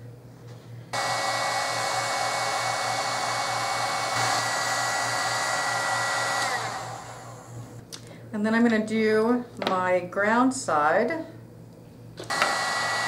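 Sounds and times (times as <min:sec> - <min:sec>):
heat gun fan whirring: 0:00.8 - 0:08.8, 0:12.2 - 0:13.0.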